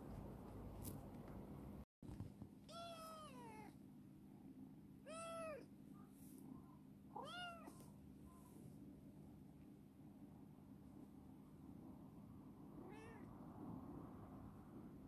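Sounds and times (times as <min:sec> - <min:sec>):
young cat meowing: 0:02.7 - 0:03.8, 0:05.0 - 0:05.7, 0:07.2 - 0:07.8, 0:12.8 - 0:13.3.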